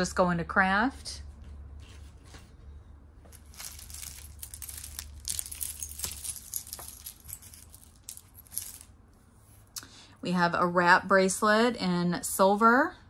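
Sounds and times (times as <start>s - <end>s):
jewelry clinking and rattling: 3.3s - 9.0s.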